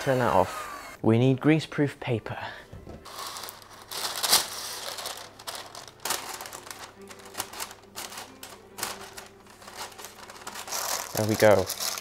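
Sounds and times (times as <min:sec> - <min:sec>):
paper crinkling: 0:03.0 - 0:12.0.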